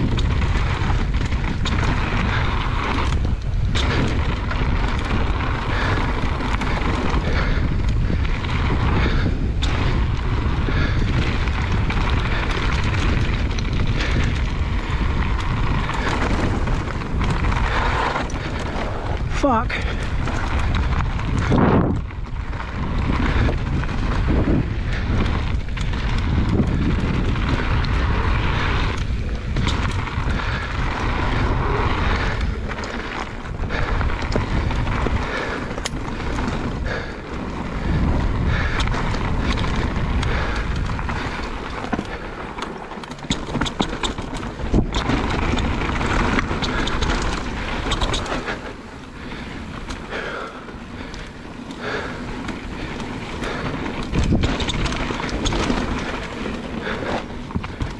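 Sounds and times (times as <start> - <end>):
bike rattling: 0.0 - 57.9
bike tyre roar: 0.0 - 57.9
wind noise on microphone: 0.0 - 57.9.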